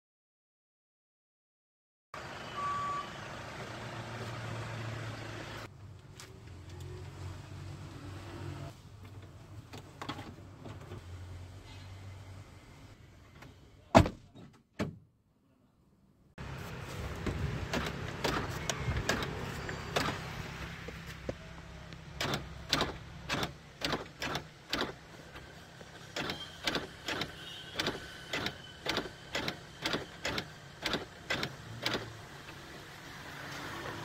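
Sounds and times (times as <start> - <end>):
sharp mechanical clicks: 22.2 - 25.0, 26.1 - 32.2.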